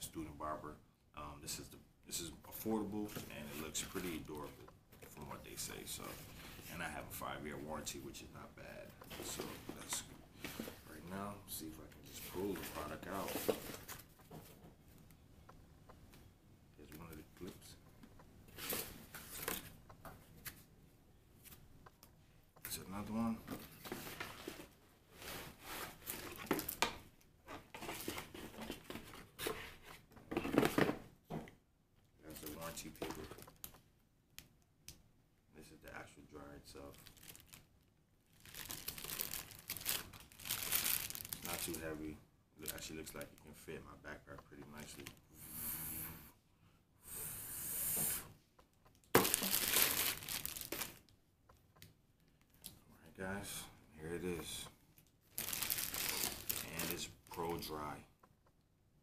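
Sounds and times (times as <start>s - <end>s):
cardboard and paper rustling: 12.0s - 14.6s, 27.5s - 31.0s
plastic bag crinkling: 36.8s - 42.0s, 49.1s - 51.1s, 55.0s - 57.7s.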